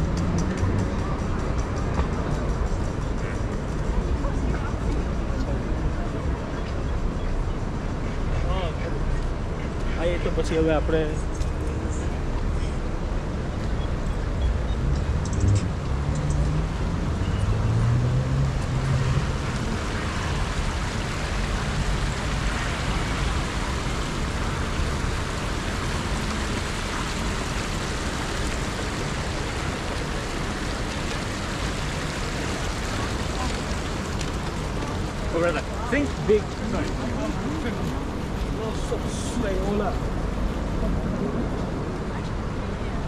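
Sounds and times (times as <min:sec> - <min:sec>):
city traffic noise: 0:00.0 - 0:43.0
vehicle engine passing: 0:14.8 - 0:41.2.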